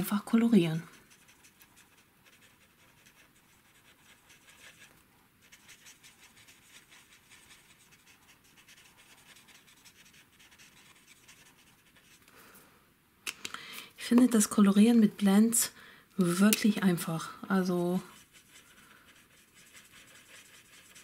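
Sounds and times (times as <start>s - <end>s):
marker tip scratching on cardstock: 0.8s - 12.2s, 18.2s - 21.0s.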